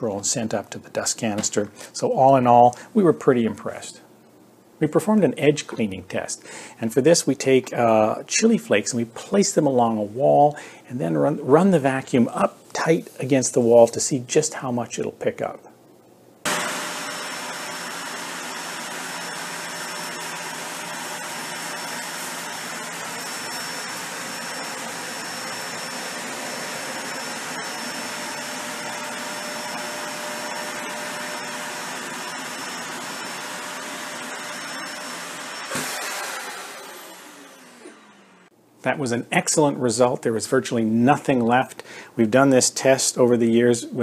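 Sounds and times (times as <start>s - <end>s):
vacuum cleaner running on carpet: 16.5s - 38.4s.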